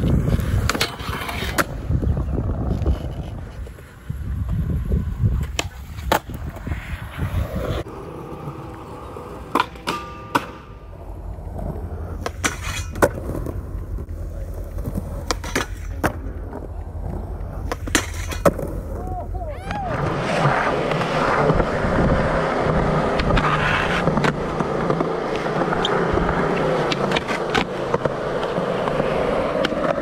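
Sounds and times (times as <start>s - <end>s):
skateboard wheels rolling on concrete: 0.0s - 30.0s
skateboard popping and landing clacks: 5.3s - 6.8s, 9.4s - 19.0s, 23.0s - 30.0s.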